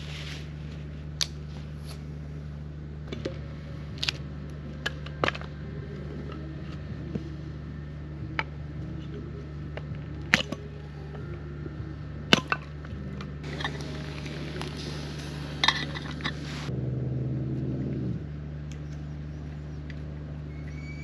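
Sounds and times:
axe splitting firewood: 0:09.7 - 0:10.8, 0:12.3 - 0:16.4.

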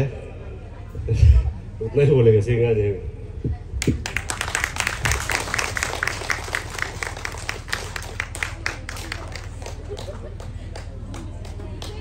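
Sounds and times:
audience clapping: 0:03.8 - 0:12.0.

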